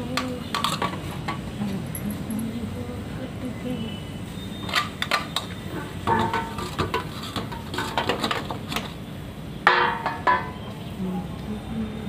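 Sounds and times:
steel dishes clattering: 0.2s - 1.4s, 4.6s - 9.0s, 9.6s - 10.8s
loud ringing clank: 4.6s - 8.1s, 9.6s - 10.8s.

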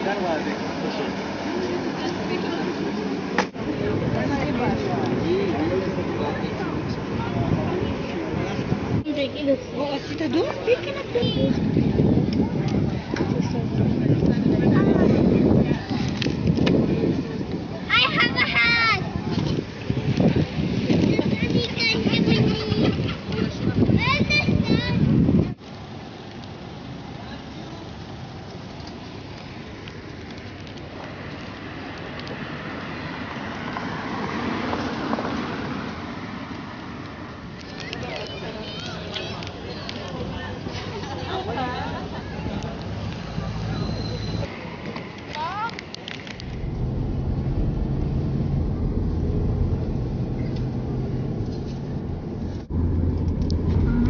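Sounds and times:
cars driving past: 31.2s - 37.1s, 46.1s - 54.0s.

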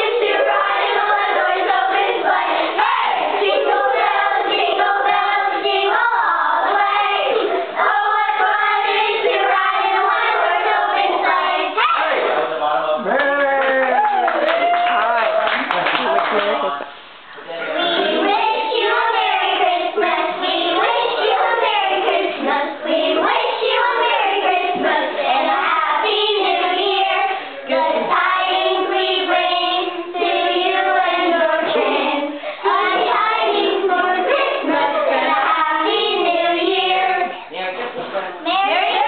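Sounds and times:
children singing: 0.0s - 12.6s, 17.5s - 37.7s.

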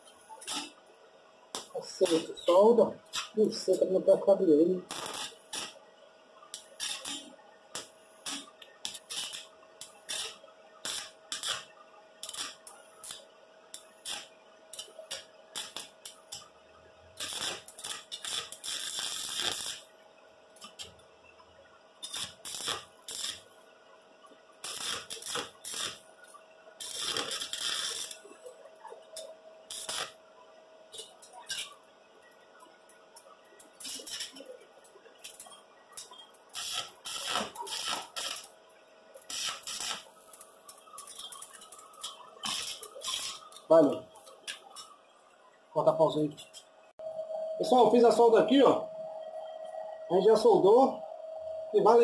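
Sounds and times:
arc welding crackle: 0.0s - 0.8s, 1.5s - 20.0s, 20.6s - 21.0s, 22.0s - 23.6s, 24.2s - 30.2s, 30.9s - 31.9s, 32.5s - 45.0s.

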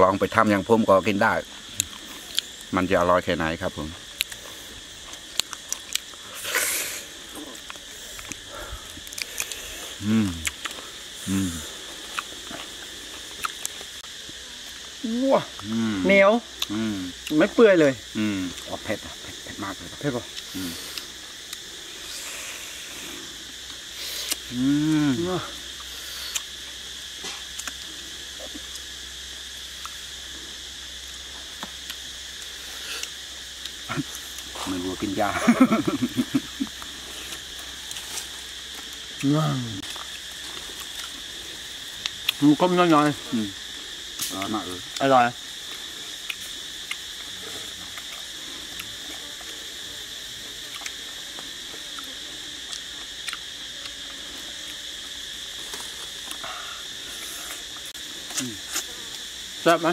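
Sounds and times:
forest insects droning: 0.0s - 59.9s
man chewing and gnawing: 1.6s - 2.7s, 4.0s - 14.9s, 18.5s - 24.6s, 25.6s - 26.5s, 27.3s - 28.9s, 31.3s - 34.7s, 35.8s - 42.4s, 43.1s - 59.3s
chewing clicks and smacks: 4.2s - 4.4s, 5.0s - 6.2s, 7.5s - 9.6s, 10.4s - 10.8s, 12.0s - 12.7s, 13.3s - 13.9s, 27.5s - 27.8s, 41.9s - 42.4s, 45.7s - 47.3s, 50.7s - 54.0s.

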